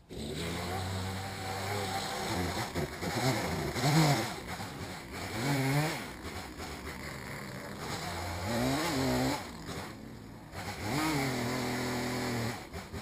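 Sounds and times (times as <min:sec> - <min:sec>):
chainsaw idling and revving: 0:00.0 - 0:13.0.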